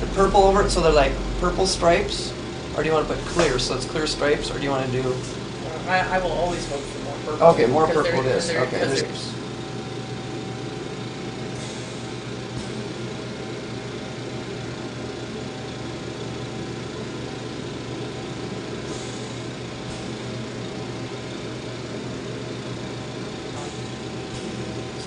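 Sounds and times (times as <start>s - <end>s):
torch flame roaring: 0.0s - 10.0s
low steady hum: 0.0s - 15.9s.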